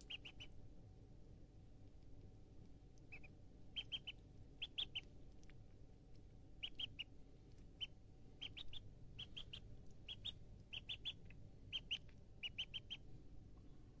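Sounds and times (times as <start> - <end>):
duckling peeping: 0.0 - 0.6, 3.0 - 5.6, 6.5 - 13.1.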